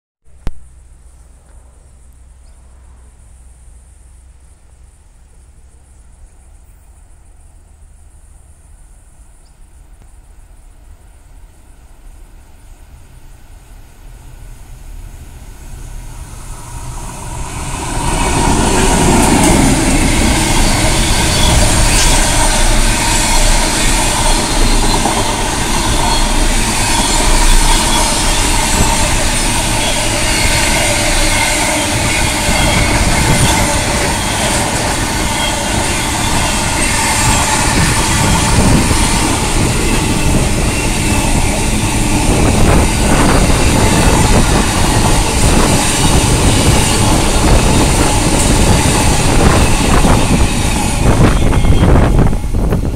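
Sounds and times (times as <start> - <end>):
diesel locomotives passing: 0.3 - 52.9
wheels clattering on rails: 14.3 - 52.9.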